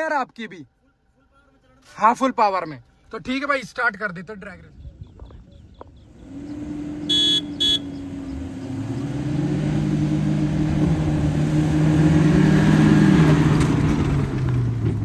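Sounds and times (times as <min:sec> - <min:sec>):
car engines revving: 0:05.3 - 0:15.0
car horn toots: 0:07.0 - 0:08.1.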